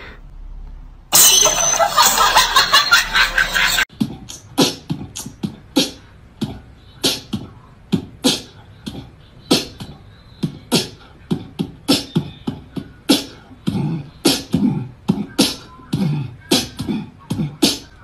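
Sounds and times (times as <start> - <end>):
beatboxing beat: 3.9 - 18.0.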